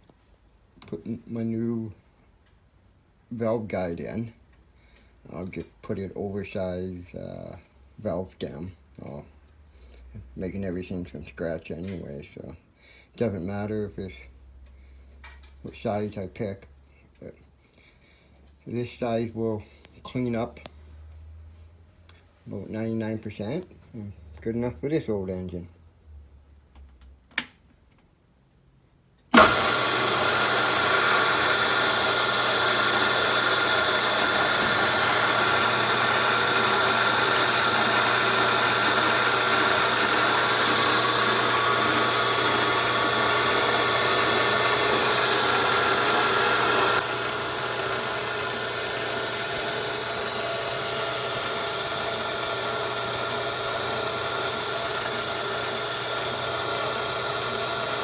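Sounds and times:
milling machine humming: 29.4 - 58.0.

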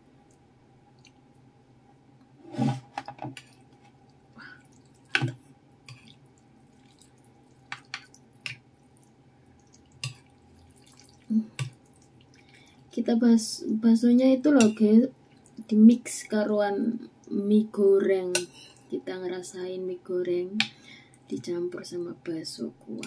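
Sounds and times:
soft wet broth sounds: 0.0 - 2.4, 3.3 - 13.7, 14.4 - 17.5.

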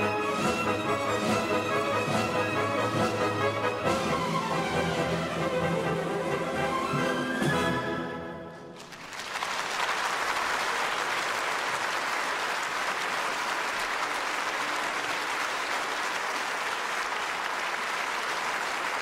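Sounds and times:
audience applauding: 8.7 - 19.0.

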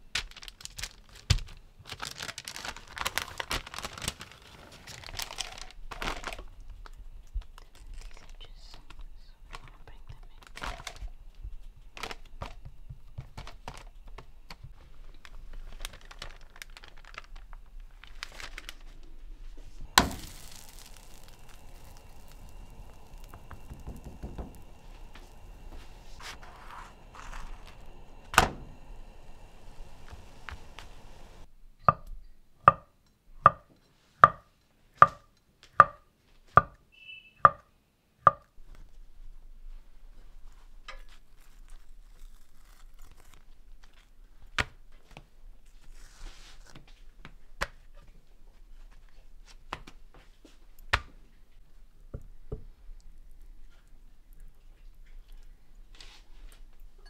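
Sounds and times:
parchment paper crinkling: 0.0 - 11.2, 11.8 - 31.5, 40.1 - 48.1
steady hiss: 17.8 - 31.5
dough thumping into pan: 19.9 - 25.6.

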